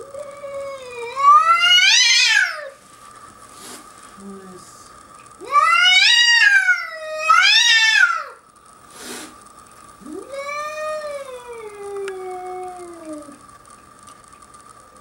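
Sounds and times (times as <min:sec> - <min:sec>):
cat yowling: 0:00.1 - 0:02.8, 0:05.4 - 0:08.4, 0:10.0 - 0:13.4.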